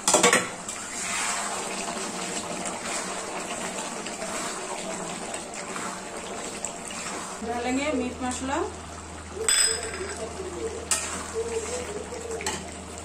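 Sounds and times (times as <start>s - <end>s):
spatula stirring in a pan: 0.1s - 7.5s, 10.6s - 12.9s
curry simmering and bubbling: 0.6s - 7.4s.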